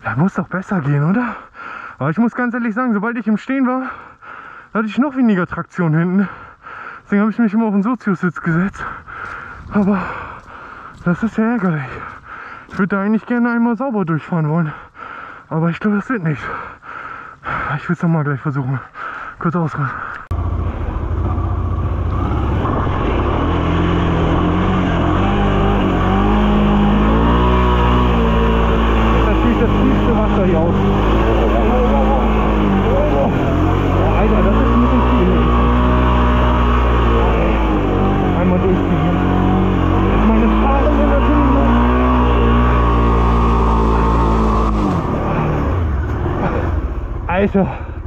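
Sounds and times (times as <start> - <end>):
motorcycle engine running: 20.3 - 48.0.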